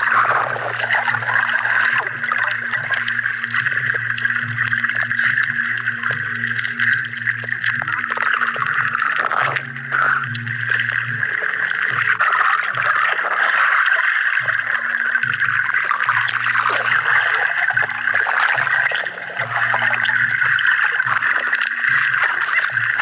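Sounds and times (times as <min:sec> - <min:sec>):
gurgling water: 0:00.0 - 0:23.0
low hum: 0:00.0 - 0:23.0.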